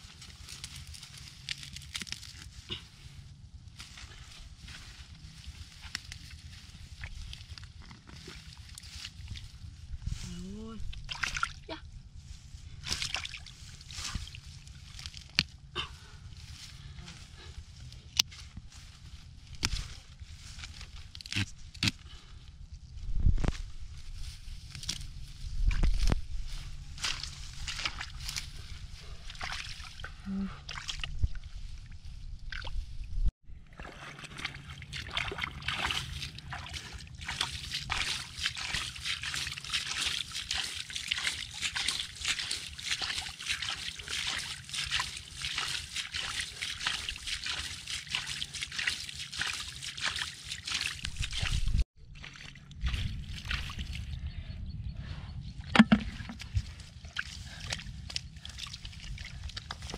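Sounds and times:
sloshing in muddy water: 0:10.8 - 0:11.8, 0:12.8 - 0:16.1, 0:26.9 - 0:33.0, 0:33.6 - 0:54.1, 0:55.7 - 0:59.9.

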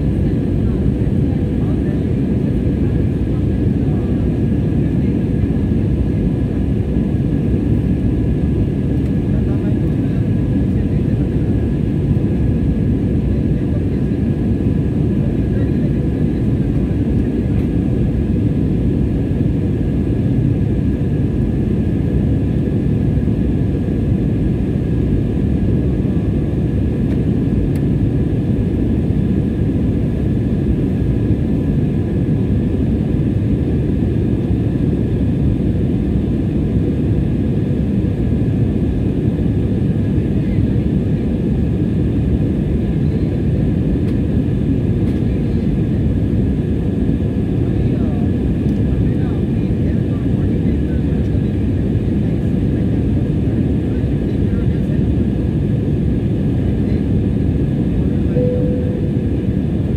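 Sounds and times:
jet engines roaring in cabin: 0:00.0 - 0:59.9
faint steady whine: 0:58.0 - 0:59.9.

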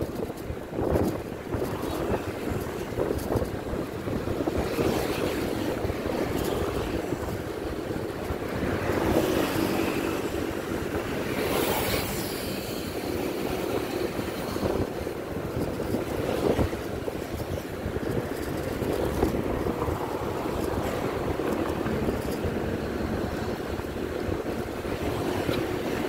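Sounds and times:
engine and road rumble: 0:00.0 - 0:26.0
wind buffeting microphone: 0:00.0 - 0:26.0.

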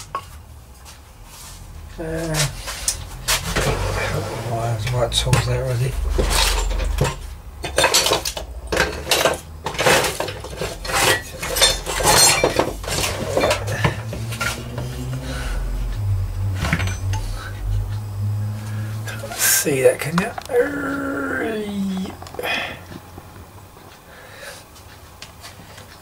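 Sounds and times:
low steady hum: 0:00.0 - 0:26.0
tools clinking and clattering: 0:06.1 - 0:15.0, 0:16.6 - 0:17.3.

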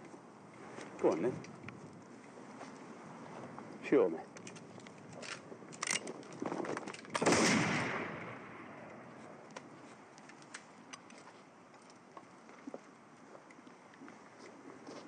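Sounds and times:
rifle shot with echo: 0:07.2 - 0:09.4.

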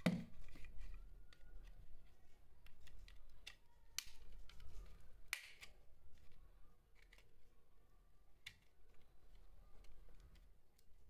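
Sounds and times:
plastic case clicks and snaps: 0:05.3 - 0:05.8.

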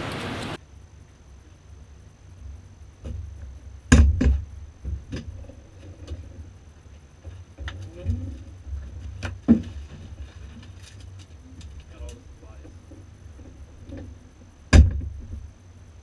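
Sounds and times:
low steady rumble: 0:00.0 - 0:16.0
handling knocks and clunks: 0:07.2 - 0:11.0.

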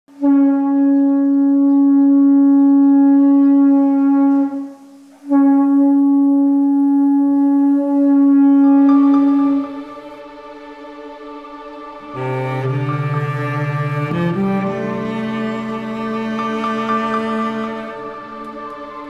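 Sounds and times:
conch shell blasts: 0:00.2 - 0:10.3.

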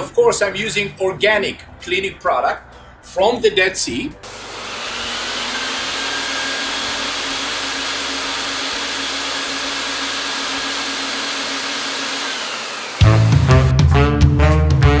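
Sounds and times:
vacuum suction rushing hiss: 0:04.2 - 0:13.1.

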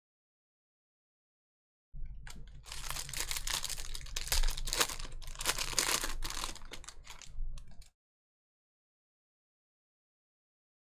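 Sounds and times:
card pack wrapper crinkling and tearing: 0:02.3 - 0:07.9.

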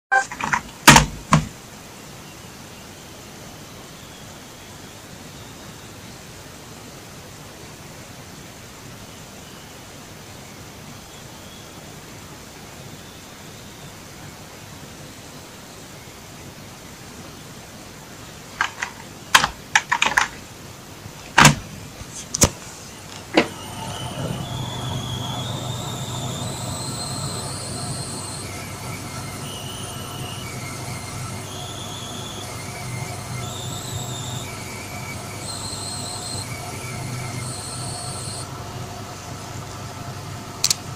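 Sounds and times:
graphics card coil whine notes: 0:22.9 - 0:40.5
sharp clicks: 0:40.6 - 0:40.9.

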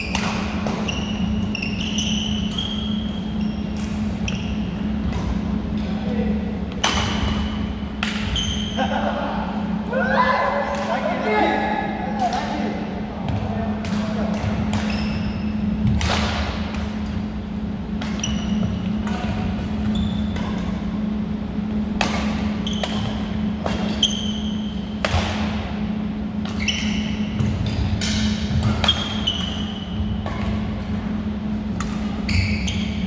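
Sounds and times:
rackets striking shuttlecock: 0:00.0 - 0:01.3, 0:02.3 - 0:05.6, 0:06.7 - 0:08.4, 0:13.8 - 0:17.3, 0:17.9 - 0:32.3
sneakers squeaking on floor: 0:00.0 - 0:05.5, 0:06.9 - 0:09.0, 0:14.4 - 0:16.0, 0:18.0 - 0:21.2, 0:22.2 - 0:25.0, 0:25.9 - 0:30.8, 0:31.4 - 0:33.0
low hum: 0:00.0 - 0:33.0.

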